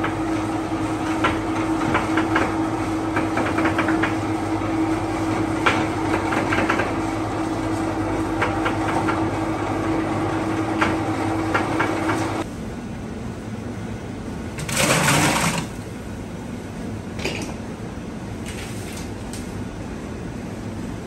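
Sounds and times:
electric mincer humming and clattering: 0.0 - 12.4, 14.6 - 15.8.

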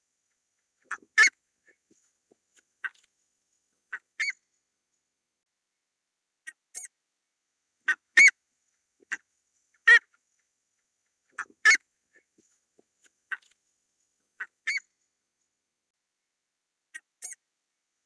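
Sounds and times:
ibis calling: 3.9 - 4.4.

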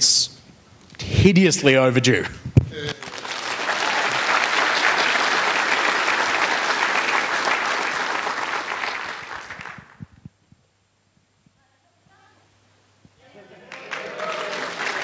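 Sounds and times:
audience applause: 2.8 - 10.1, 13.4 - 15.0.

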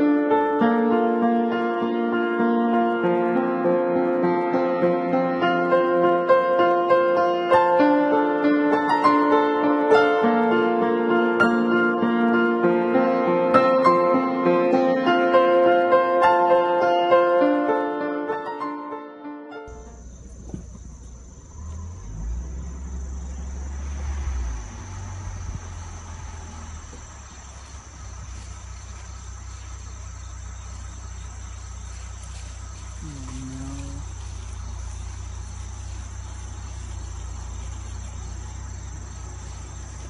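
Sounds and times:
car engine rumble from inside: 19.7 - 40.0
insect chorus buzzing: 19.7 - 40.0.

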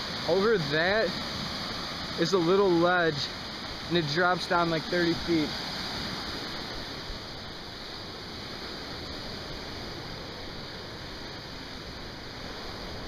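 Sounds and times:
waves breaking on stony beach: 0.0 - 13.0.

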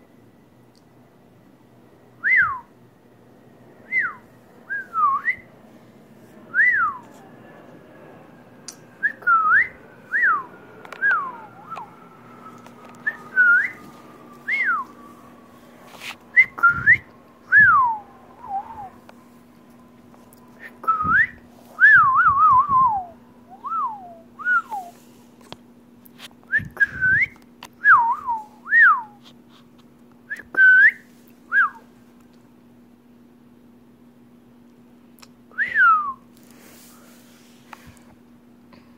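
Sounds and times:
faint low hum: 0.0 - 38.9
cockatiel whistling: 8.7 - 19.0.

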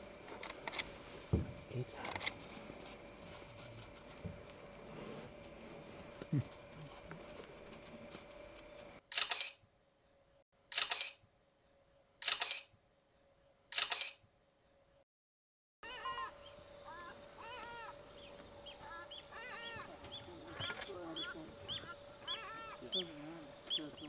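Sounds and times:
camera shutter clicks: 9.1 - 9.6, 10.7 - 11.2, 12.2 - 12.7, 13.7 - 14.2
short repeated chirping calls: 9.1 - 9.6, 10.7 - 11.2, 12.2 - 12.8, 13.7 - 14.2.

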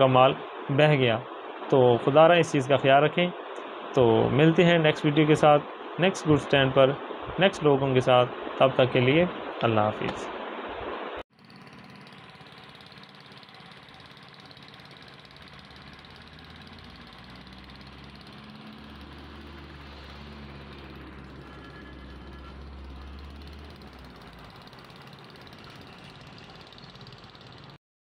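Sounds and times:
stopped traffic background: 11.4 - 27.8
truck engine idling: 11.4 - 27.8.

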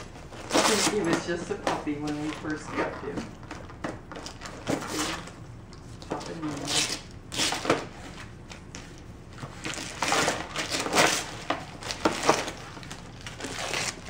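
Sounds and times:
wrapping paper tearing and rustling: 0.0 - 1.4, 4.2 - 5.4, 6.3 - 14.0.

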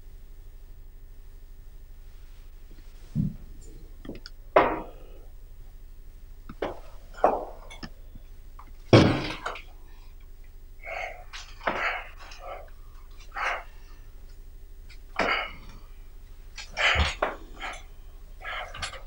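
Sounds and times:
person making throat noises: 3.1 - 5.4, 10.8 - 13.9, 15.1 - 15.9, 16.6 - 19.0.

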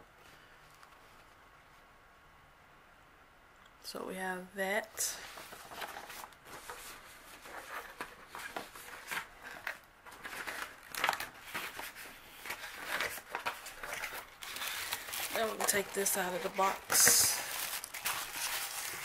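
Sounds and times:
paper and cardboard rustling: 5.1 - 19.0.

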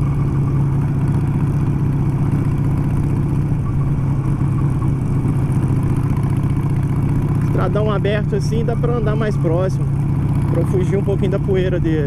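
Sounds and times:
motorcycle engine cruising: 0.0 - 12.0.

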